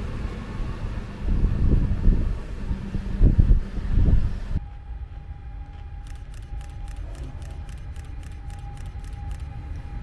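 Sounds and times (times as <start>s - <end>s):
electric locomotive rumble and whine: 0.0s - 10.0s
light fast ticking: 6.0s - 9.7s.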